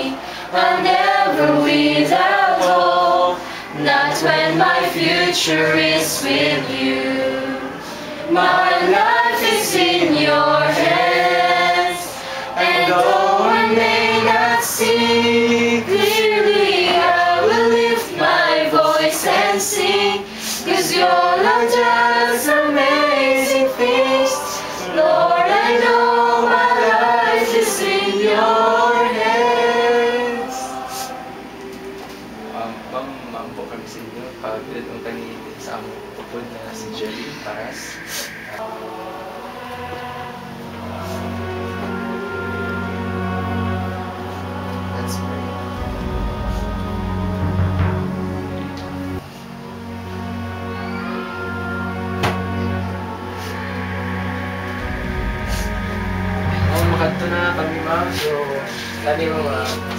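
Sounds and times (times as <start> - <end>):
women singing together: 0.0 - 32.0, 38.0 - 47.6.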